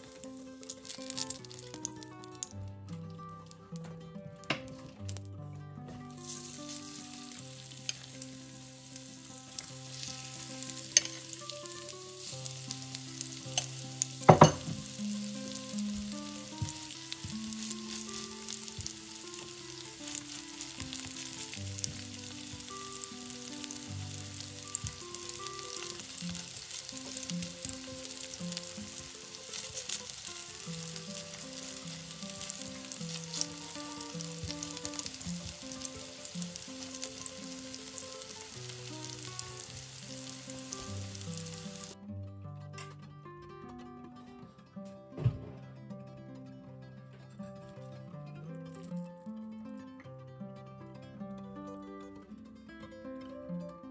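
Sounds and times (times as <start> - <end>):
batter sizzling in oil: 0.0 - 3.8, 6.0 - 42.0.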